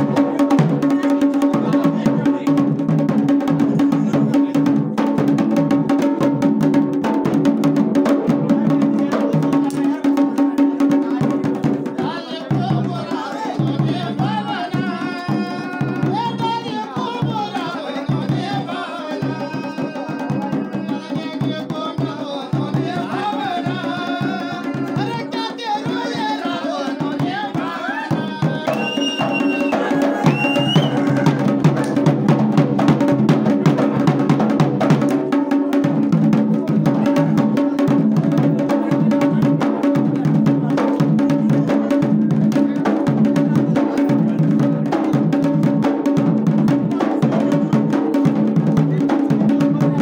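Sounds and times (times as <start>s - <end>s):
person singing: 0.0s - 2.9s, 8.4s - 32.5s
fast drum beats: 0.0s - 50.0s.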